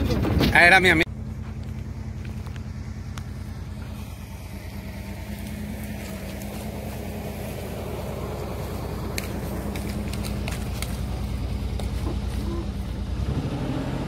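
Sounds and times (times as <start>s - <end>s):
vehicle engine idling: 0.8s - 14.0s.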